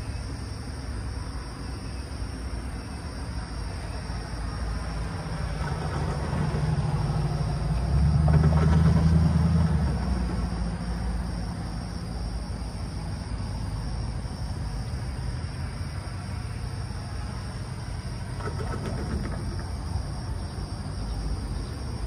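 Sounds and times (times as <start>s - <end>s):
passing vehicle engine humming: 0.0s - 22.0s.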